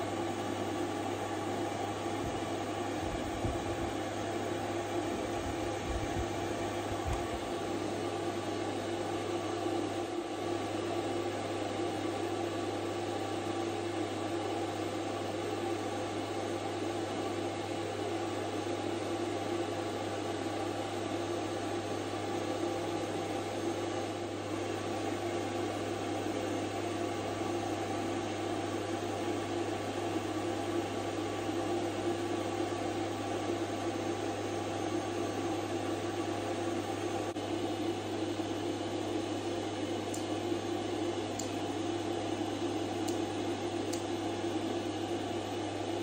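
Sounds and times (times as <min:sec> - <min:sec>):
machine hum and hiss: 0:00.0 - 0:46.0.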